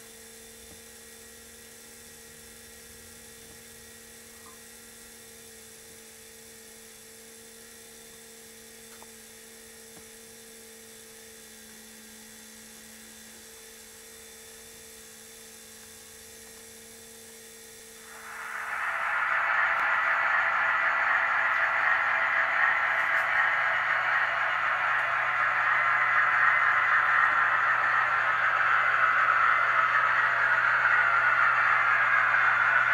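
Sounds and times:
electrical hum: 17.6s - 32.9s
faint hiss: 18.0s - 32.1s.

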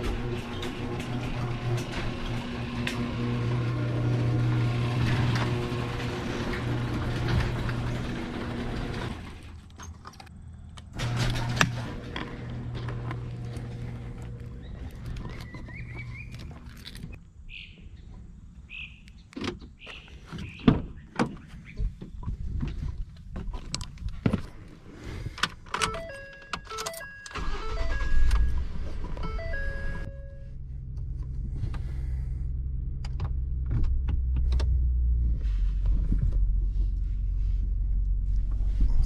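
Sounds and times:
garage door opener motor humming: 0.0s - 9.6s, 11.0s - 16.3s
truck engine cranking and idling: 0.0s - 17.2s, 25.0s - 39.0s
truck chime beeping: 25.8s - 30.6s.

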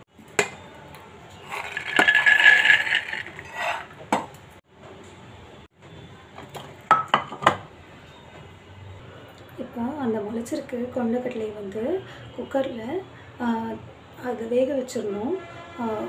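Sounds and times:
chickpeas rattling into metal pot: 1.4s - 3.9s.

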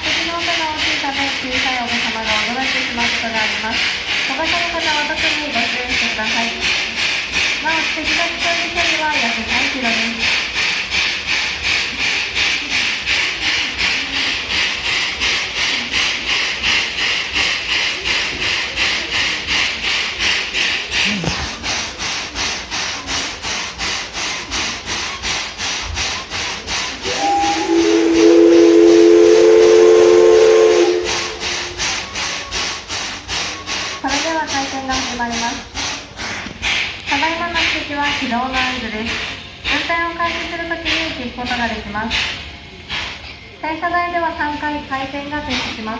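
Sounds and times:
rhythmic steam pulsing: 0.0s - 45.9s
steam locomotive hissing: 0.0s - 45.9s
steam whistle blast: 27.0s - 32.1s.

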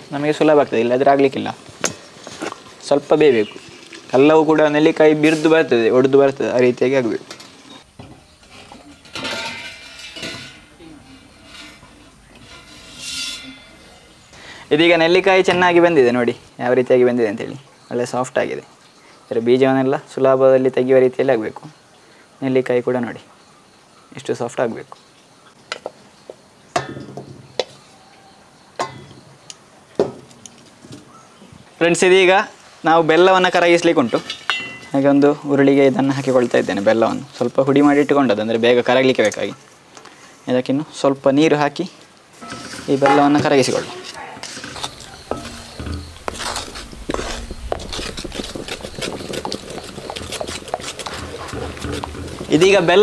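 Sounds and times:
steel pots knocking and clinking: 7.2s - 16.0s, 26.7s - 27.7s, 28.8s - 29.2s, 33.5s - 35.2s, 42.4s - 53.0s.

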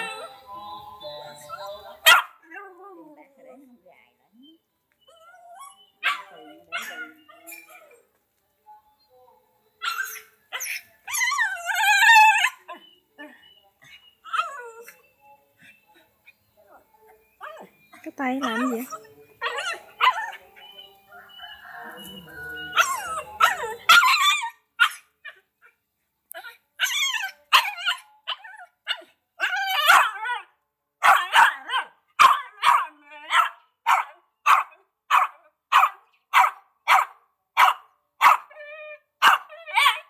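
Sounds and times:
small dog barking: 2.0s - 2.6s, 6.0s - 7.8s, 28.9s - 30.2s, 31.0s - 38.5s, 39.2s - 40.0s.

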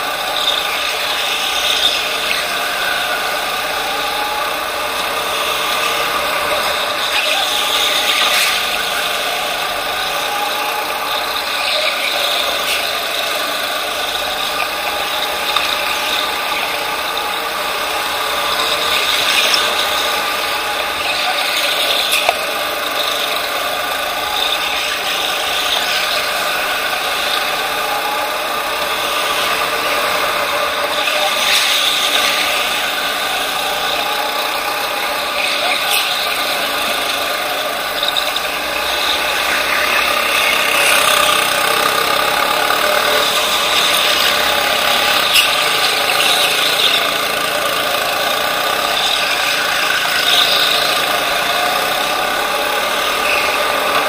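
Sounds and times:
go-kart drivetrain whine and rattle: 0.0s - 54.0s.

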